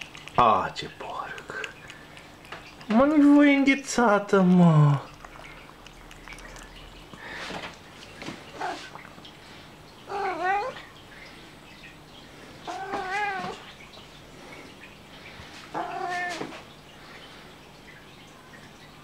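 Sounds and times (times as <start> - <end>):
cat meowing: 10.1 - 10.9, 12.7 - 13.6, 15.7 - 16.6.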